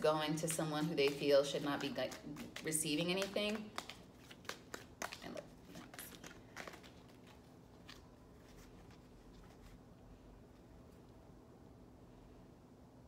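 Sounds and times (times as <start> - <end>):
cards being shuffled: 0.4 - 9.8.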